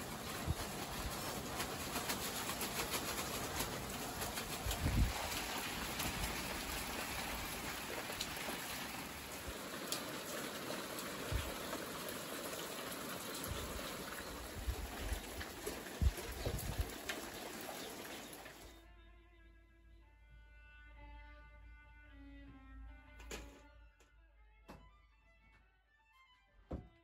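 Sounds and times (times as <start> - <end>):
rain falling: 0.0 - 18.8.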